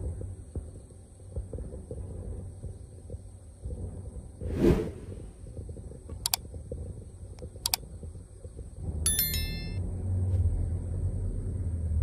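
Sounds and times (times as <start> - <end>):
ringing metallic clink: 9.1 - 9.8.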